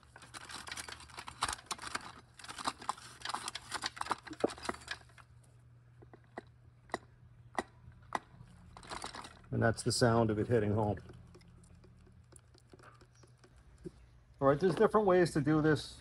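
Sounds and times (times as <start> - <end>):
metal clutch drum clicking and rattling: 0.0 - 5.2, 8.1 - 9.5.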